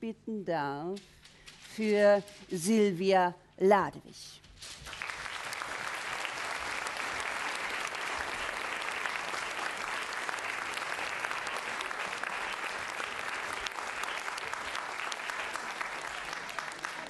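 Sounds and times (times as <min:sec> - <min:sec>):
audience applause: 0:04.8 - 0:17.0.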